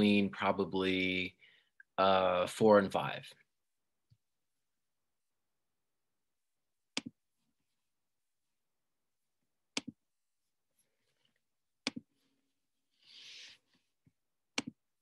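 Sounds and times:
computer mouse clicking: 14.6s - 14.8s.

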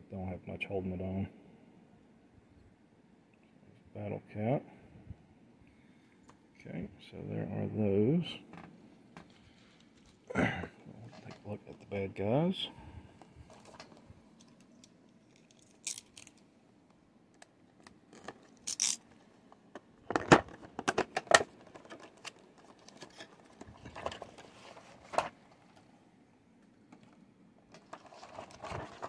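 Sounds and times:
plastic packaging crinkling: 15.2s - 16.4s.

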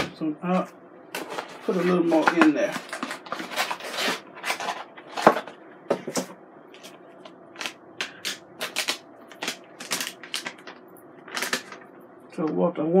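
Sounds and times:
paper packaging rustling: 1.2s - 6.2s, 6.8s - 11.9s.

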